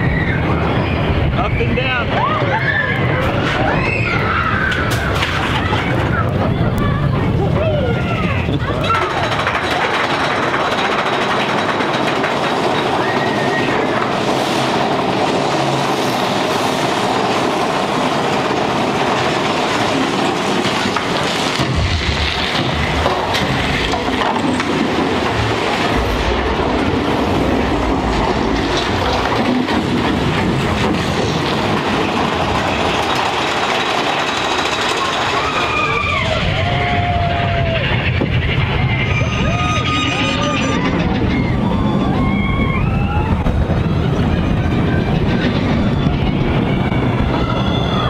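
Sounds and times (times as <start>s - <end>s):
roller coaster wheels on rails: 0.0s - 48.0s.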